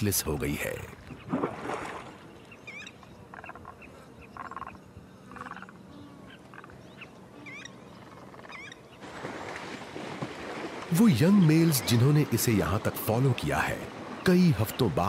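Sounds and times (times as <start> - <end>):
birds chirping: 0.0 - 9.7, 10.5 - 15.0
rattling bird calls: 2.7 - 9.0.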